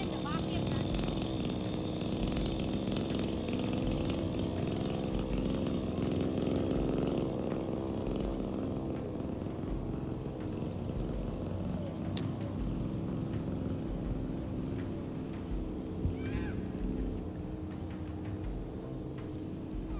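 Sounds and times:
lawn mower running: 0.0 - 19.9.

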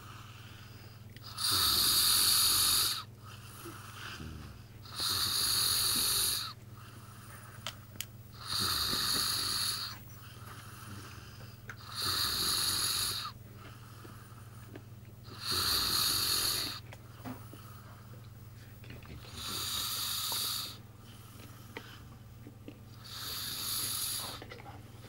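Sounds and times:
quiet breathing: 0.0 - 25.0
man snoring: 1.2 - 6.6, 8.3 - 13.4, 15.2 - 16.8, 19.2 - 20.8, 23.0 - 24.4.

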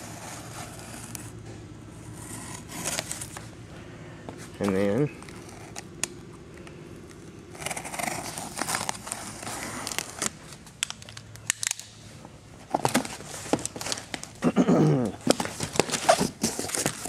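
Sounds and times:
packing paper rustling: 2.3 - 3.5, 7.6 - 12.0, 12.6 - 14.4, 15.2 - 17.0
cardboard flaps folding open: 15.2 - 17.0
knife slitting packing tape: 15.2 - 17.0.

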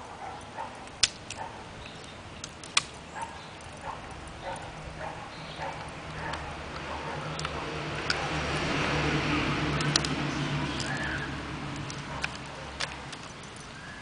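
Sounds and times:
twig snapping: 0.9 - 3.0, 9.8 - 13.3
branch cracking: 0.9 - 4.5, 9.7 - 14.0.

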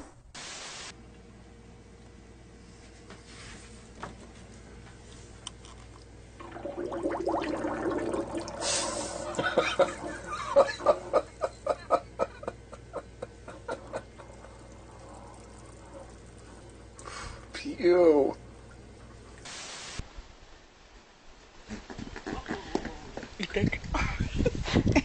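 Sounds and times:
person laughing: 9.2 - 14.4, 21.7 - 25.0.

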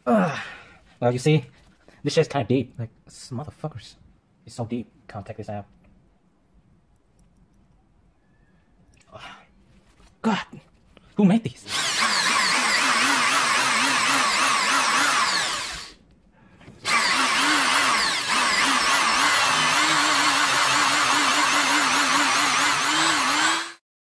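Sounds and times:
electric drill boring into metal: 11.7 - 16.0, 16.8 - 23.8.

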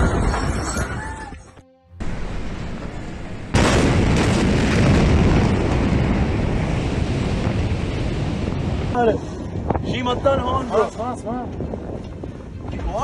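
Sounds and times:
explosion boom: 2.0 - 9.0
deep rumbling noise: 2.0 - 12.9.

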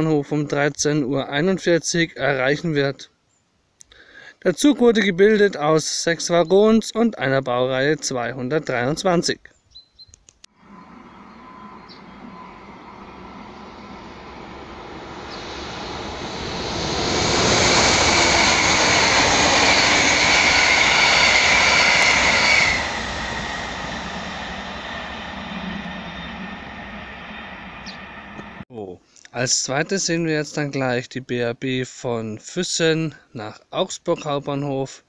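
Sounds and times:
train passing with rumbling roar: 10.5 - 28.6.

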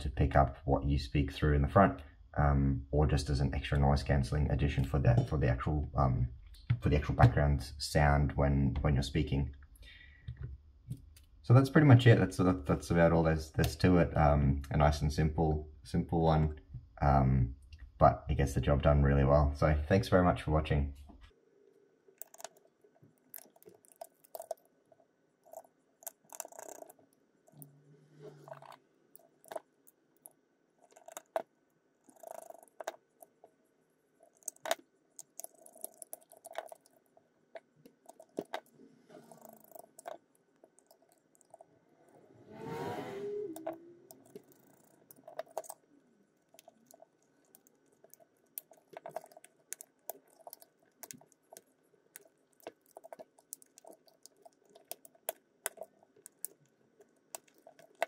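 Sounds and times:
loud scrape: 42.3 - 43.6.

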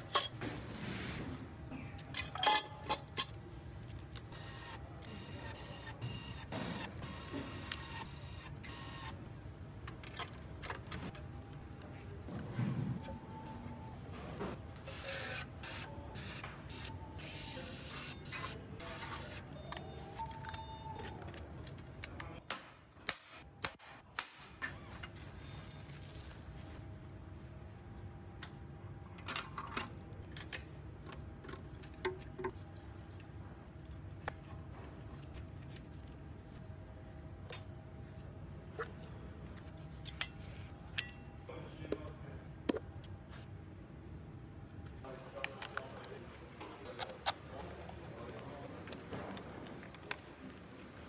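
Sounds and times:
factory background noise: 0.0 - 25.8
metal engine parts clinking: 2.0 - 3.4.

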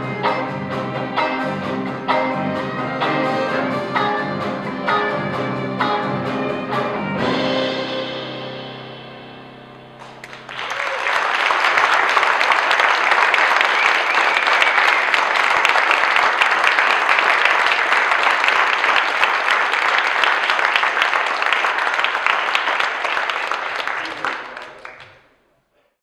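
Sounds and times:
audience applauding: 10.0 - 25.4.

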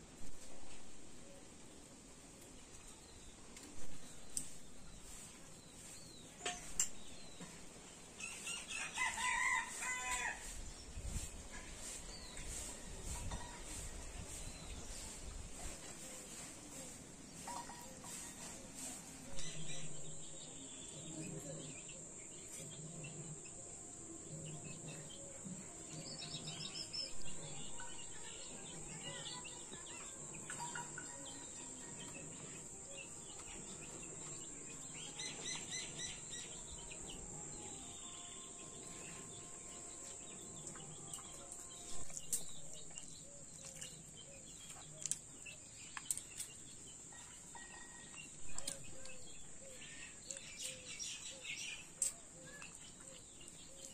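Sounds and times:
birds chirping: 39.2 - 53.9.

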